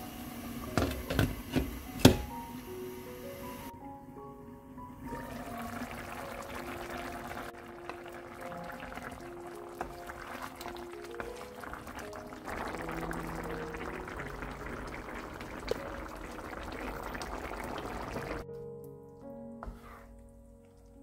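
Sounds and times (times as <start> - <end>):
gentle background music: 0.0 - 21.0
stew bubbling and popping: 5.1 - 18.4.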